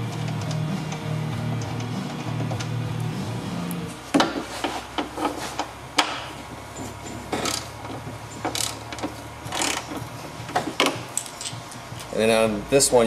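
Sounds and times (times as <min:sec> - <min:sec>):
guitar background music: 0:00.0 - 0:04.0.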